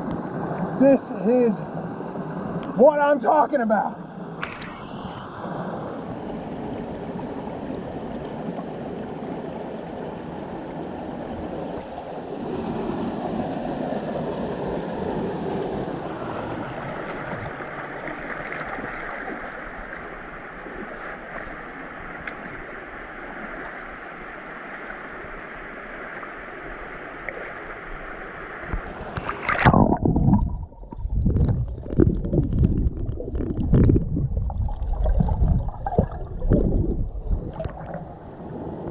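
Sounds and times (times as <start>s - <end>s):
creek water rushing: 0.0s - 38.9s
muffled gurgling and thumping: 28.7s - 38.1s.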